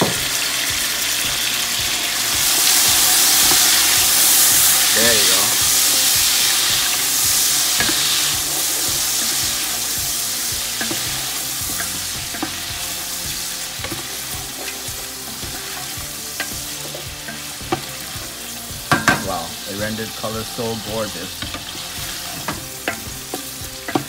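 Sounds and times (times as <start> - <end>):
chicken sizzling in hot oil: 0.0 - 24.0
wooden spoon knocking pot: 18.9 - 19.4.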